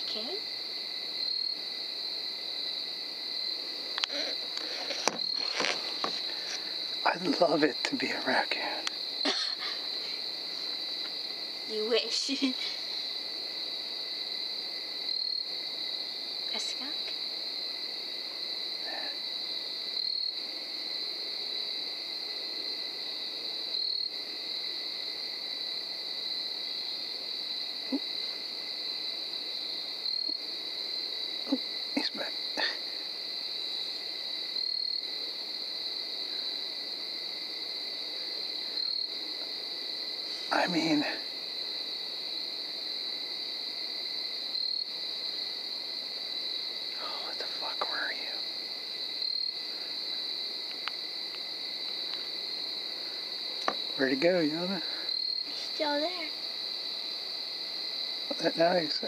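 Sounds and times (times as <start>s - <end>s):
night insects chirping: 0.0s - 59.0s.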